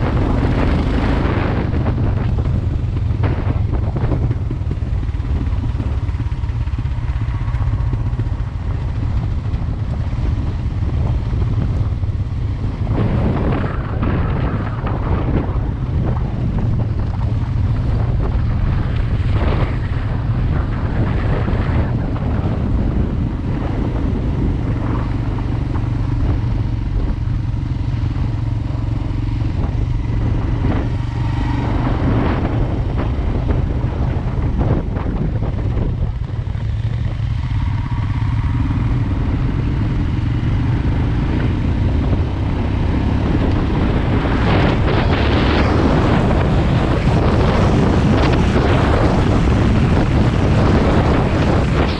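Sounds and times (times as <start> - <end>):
motorcycle engine drone: 0.0 - 51.9
wind over microphone: 0.0 - 51.9.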